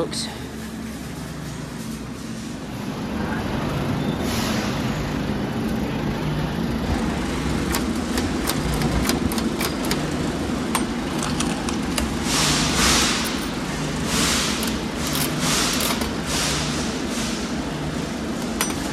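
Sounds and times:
low machine hum: 0.0s - 18.9s
vending machine metallic clicks: 7.4s - 16.6s, 18.4s - 18.9s.

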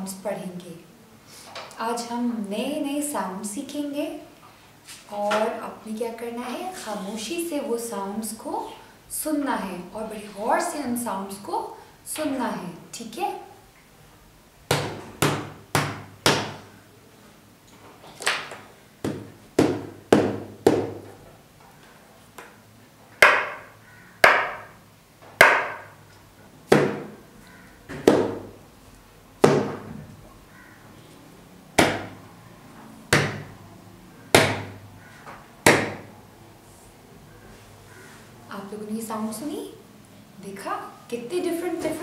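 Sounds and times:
sharp taps on hard surface: 23.2s - 24.8s, 25.4s - 25.9s.

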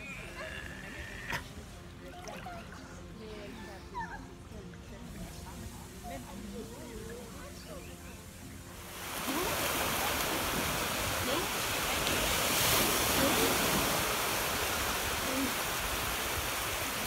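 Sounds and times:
waves breaking on a beach: 8.8s - 17.0s.

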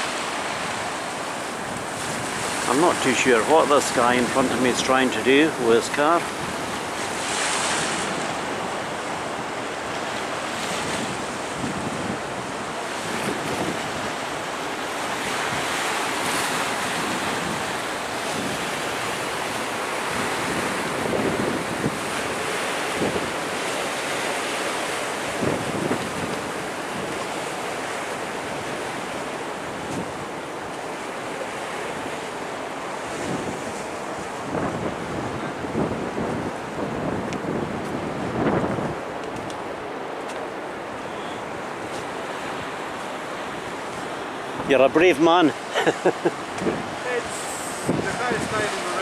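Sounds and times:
wind buffeting microphone: 0.0s - 4.8s, 5.8s - 49.0s
sea waves washing ashore: 0.0s - 49.0s.

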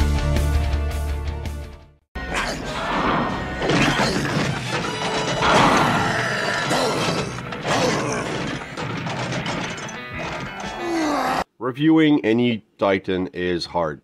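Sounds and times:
cartoon soundtrack music: 0.0s - 11.4s
mechanical clanking and crashing: 2.8s - 10.8s.

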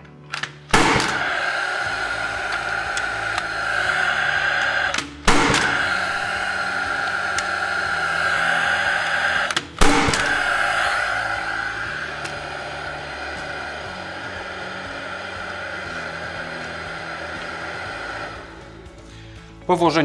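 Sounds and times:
tool fan whirring: 0.0s - 19.6s
nail gun firing: 0.3s - 3.6s, 4.9s - 6.0s, 9.5s - 10.9s.

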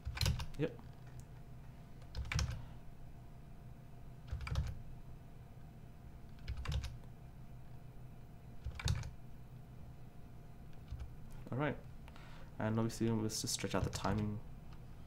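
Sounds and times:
computer keyboard key presses: 0.0s - 0.6s, 2.0s - 2.6s, 4.2s - 4.8s, 6.3s - 7.0s, 8.6s - 9.2s.

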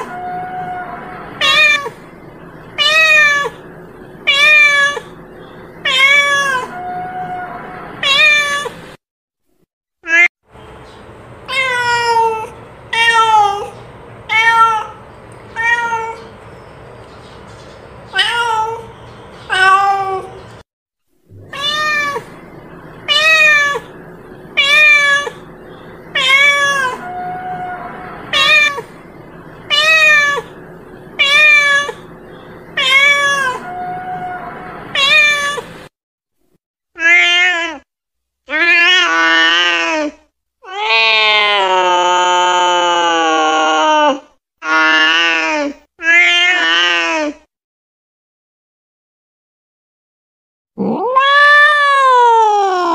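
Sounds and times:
cat meowing: 0.0s - 2.0s, 2.7s - 3.6s, 4.2s - 5.2s, 5.8s - 8.8s, 10.1s - 10.3s, 11.5s - 16.3s, 18.1s - 18.9s, 19.5s - 20.4s, 21.4s - 30.6s, 31.2s - 32.1s, 32.7s - 35.8s, 37.0s - 37.8s, 43.7s - 47.2s, 50.8s - 52.9s.

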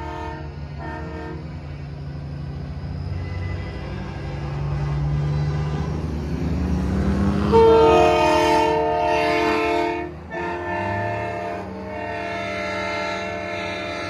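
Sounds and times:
air horn chord blasting: 0.0s - 1.4s, 7.4s - 14.0s.

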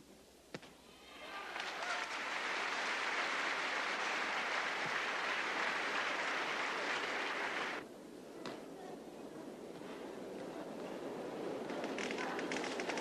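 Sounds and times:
crowd applauding: 1.2s - 7.8s
hall noise: 1.6s - 7.8s.

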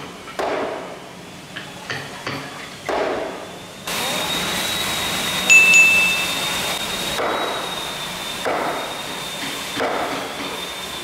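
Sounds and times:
short bright chime: 5.5s - 6.8s.

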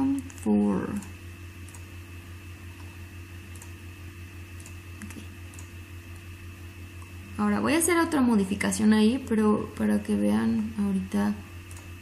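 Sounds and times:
low electrical hum: 0.0s - 12.0s
computer mouse clicks: 0.2s - 1.9s, 3.5s - 3.7s, 4.6s - 5.7s, 11.7s - 11.9s.

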